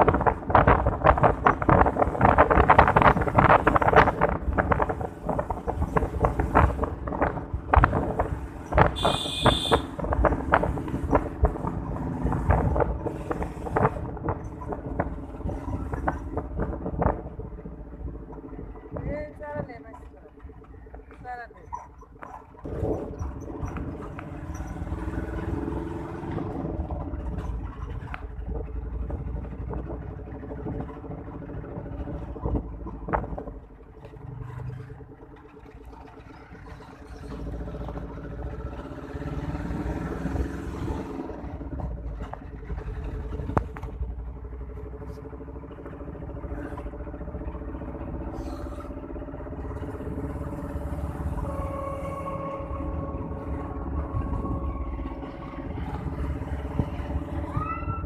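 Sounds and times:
sharp knocks and rattles: 0:00.0 - 0:09.1, 0:09.8 - 0:21.2, 0:21.8 - 0:38.8
road noise rumble: 0:00.0 - 0:58.0
vehicle engine hum: 0:00.0 - 0:58.0.

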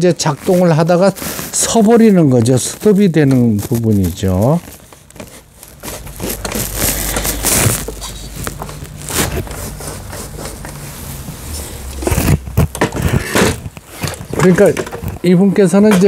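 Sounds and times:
plastic and metal parts clattering: 0:12.0 - 0:16.0.

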